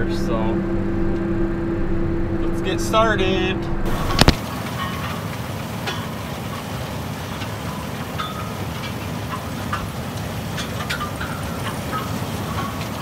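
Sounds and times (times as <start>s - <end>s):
harvester mechanical rumble: 0.0s - 13.0s
metallic squeaks and clanks: 7.4s - 13.0s.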